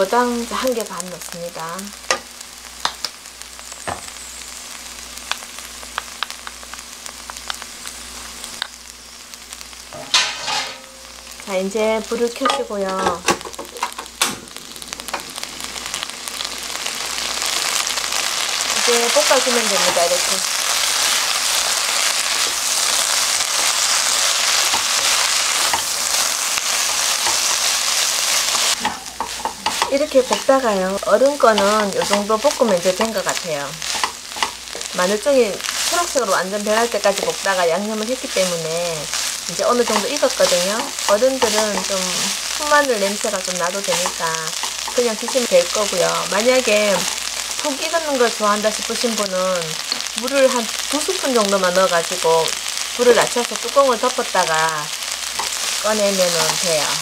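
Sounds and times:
oil sizzling in a wok: 0.0 - 57.0
spoon scraping pan: 9.9 - 11.2, 12.4 - 14.1, 21.1 - 37.4, 38.2 - 47.7, 55.2 - 57.0.

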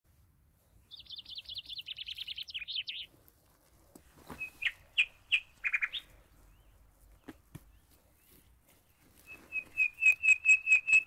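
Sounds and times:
songbird trilling: 0.9 - 3.1, 4.4 - 6.7, 9.5 - 11.0.

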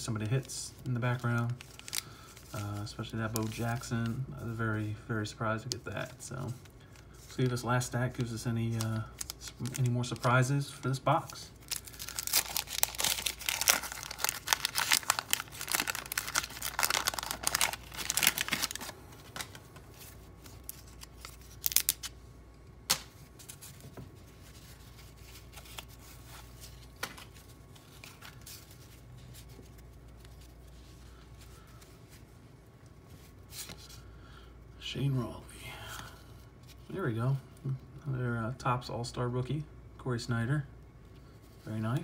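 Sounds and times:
wax paper wrapper tearing and crinkling: 0.1 - 4.0, 8.0 - 22.2
handling cardboard cards: 5.6 - 22.2, 22.9 - 32.3.

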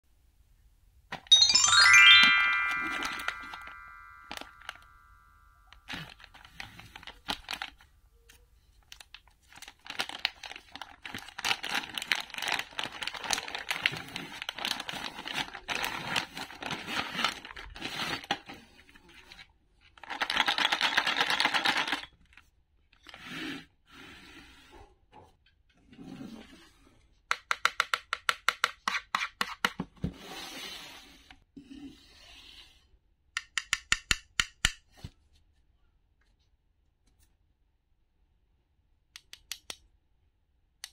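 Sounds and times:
plastic film crinkling: 5.8 - 7.8, 8.8 - 18.4.

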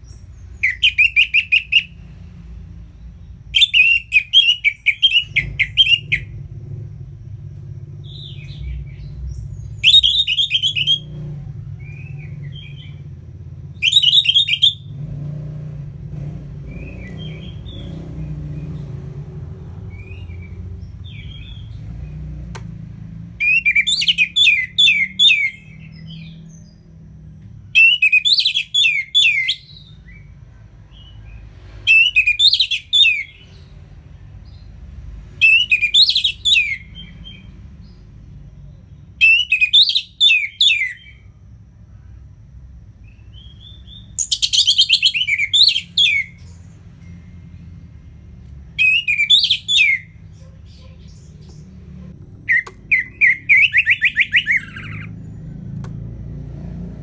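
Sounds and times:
thrush singing whistled notes: 0.0 - 34.7, 35.3 - 41.4, 43.0 - 57.0.

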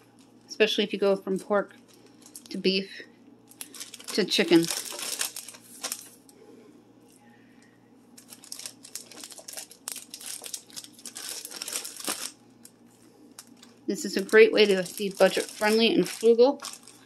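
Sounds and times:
plastic bag crinkling: 1.6 - 2.7, 3.4 - 6.3, 8.2 - 17.0.

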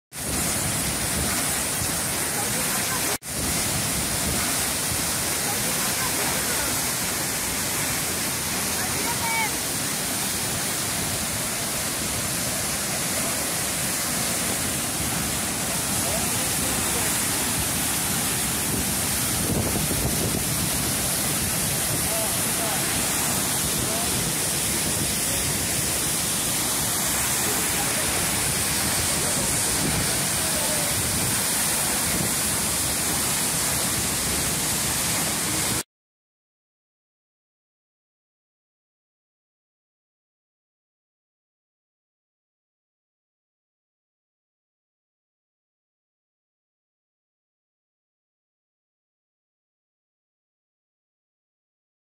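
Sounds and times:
waterfall rushing: 0.2 - 35.8.

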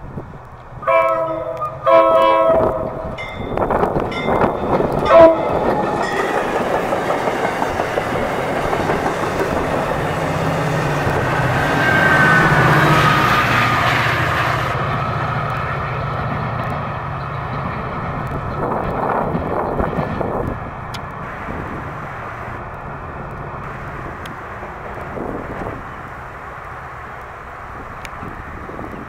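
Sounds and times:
diesel locomotive engine drone: 0.0 - 29.0
distant train rumble: 0.0 - 29.0
train wheels clattering on rails: 0.4 - 21.8.

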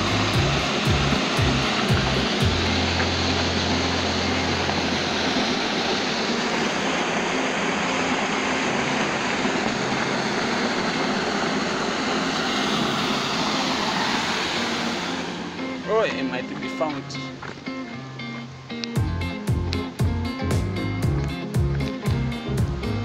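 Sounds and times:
low rumble: 0.0 - 5.5
water gushing from dam outlet: 0.0 - 18.1.

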